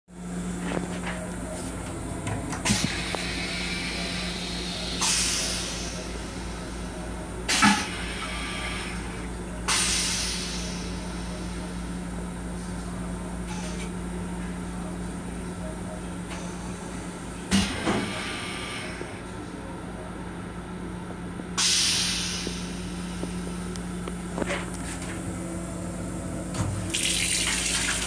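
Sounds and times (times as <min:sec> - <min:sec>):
railcar hum: 0:00.1 - 0:27.2
air hissing: 0:21.6 - 0:23.0.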